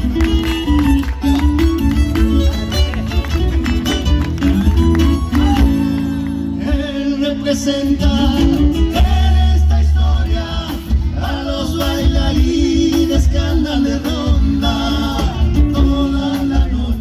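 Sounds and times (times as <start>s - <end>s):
folk band playing: 0.0s - 17.0s
man singing: 6.4s - 17.0s.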